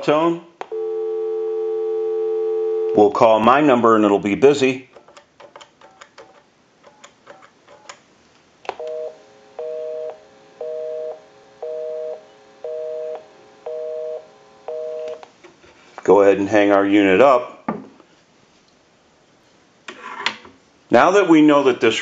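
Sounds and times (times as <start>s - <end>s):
telephone busy signal: 0.7s - 3.0s, 8.8s - 15.2s
keypad clicks: 5.0s - 8.0s.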